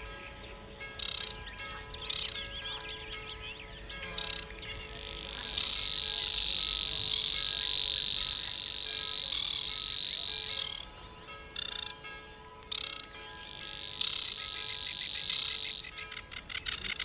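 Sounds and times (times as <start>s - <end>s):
high-pitched animal trill: 5.4s - 10.9s, 13.8s - 17.0s.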